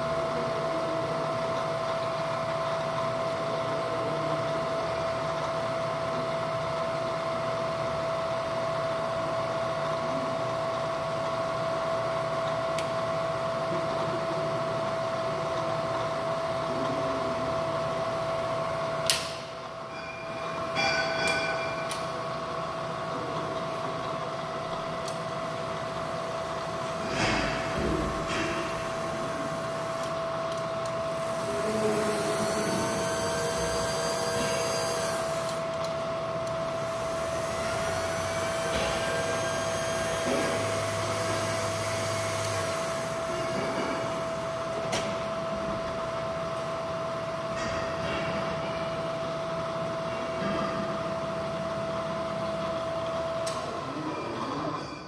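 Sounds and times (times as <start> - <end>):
milling machine motor hum: 21.6 - 47.6.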